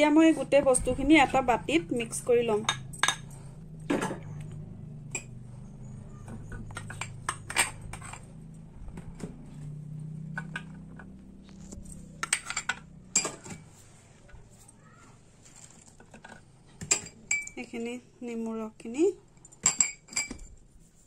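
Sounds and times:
spoon clinking in glass bowl: 0:16.8 - 0:17.6.

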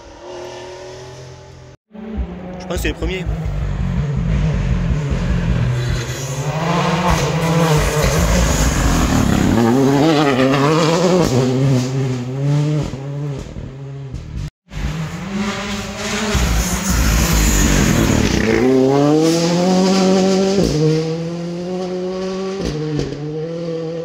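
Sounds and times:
distant rally car approaching: 0:00.0 - 0:24.0.

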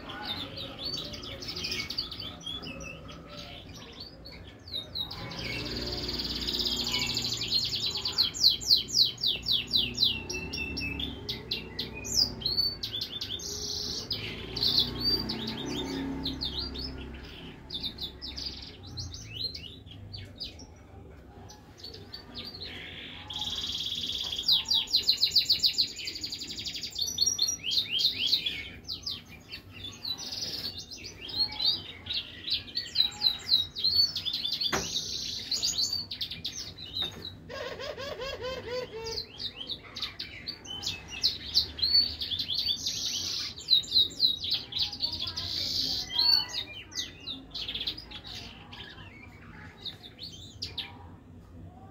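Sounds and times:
finch singing twittering trills: 0:00.0 - 0:20.7.

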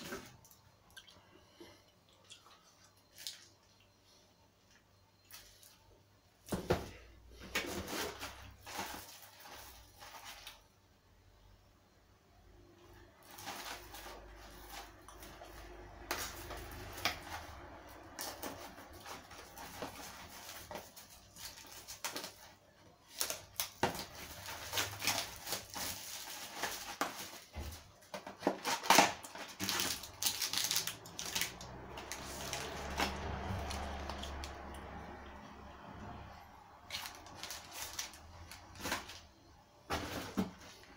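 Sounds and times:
plastic film and cardboard crinkling: 0:00.0 - 0:00.6, 0:06.5 - 0:10.8, 0:13.0 - 0:35.2, 0:36.7 - 0:40.9
knife slitting plastic wrap: 0:23.1 - 0:27.5, 0:28.4 - 0:34.2.

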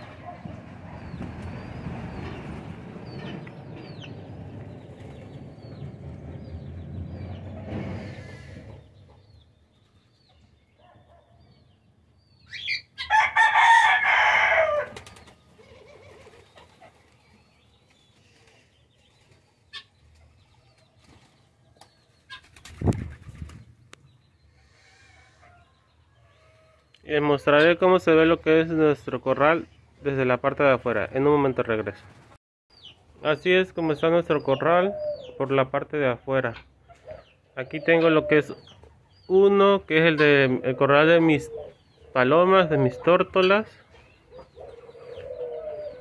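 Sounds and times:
rooster crowing: 0:13.0 - 0:15.0.

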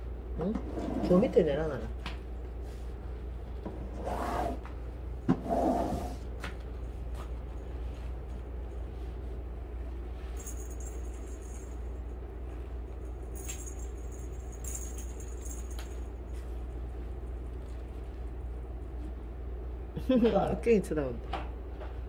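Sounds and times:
steady low hum: 0:00.0 - 0:22.0
small jingling rattle: 0:10.3 - 0:12.2, 0:12.9 - 0:16.4.

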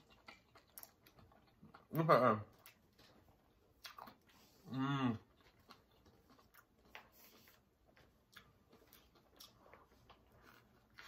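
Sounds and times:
person chewing food: 0:00.0 - 0:11.0
person humming: 0:04.7 - 0:05.2.

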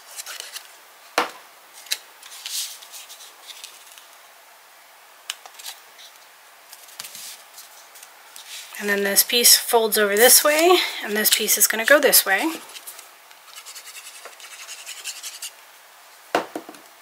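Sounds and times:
paper rustling: 0:00.0 - 0:00.8, 0:01.7 - 0:04.2, 0:05.4 - 0:09.0, 0:10.1 - 0:15.5.

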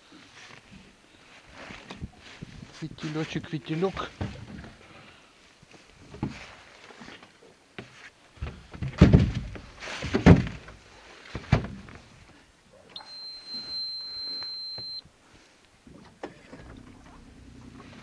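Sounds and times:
hollow knocks and thumps: 0:07.8 - 0:12.1
high-pitched beep: 0:13.0 - 0:15.0.

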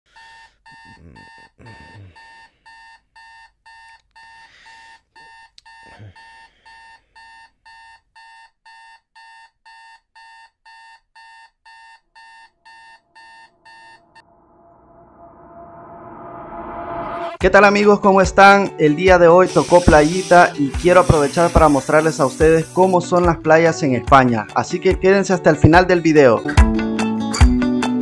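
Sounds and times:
electronic alarm beeping: 0:00.2 - 0:14.3, 0:19.5 - 0:23.0.

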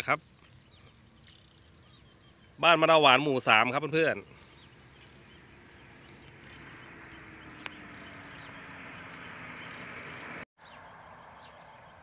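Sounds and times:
faint engine hum: 0:04.2 - 0:12.0
vehicle passing on road: 0:04.5 - 0:12.0.

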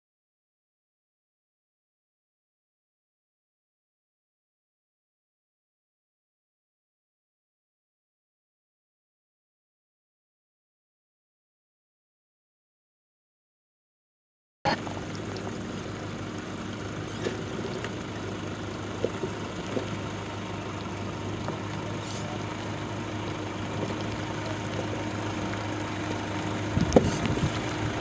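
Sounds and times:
off-road vehicle engine at low revs: 0:14.7 - 0:28.0.

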